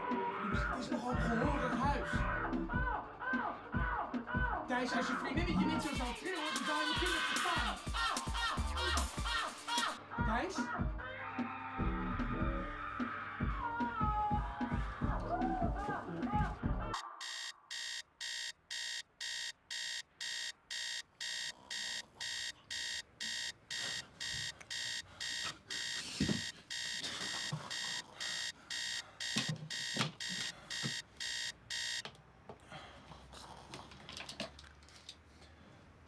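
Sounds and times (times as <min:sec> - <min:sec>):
electronic alarm beeping: 0:17.2 - 0:32.0.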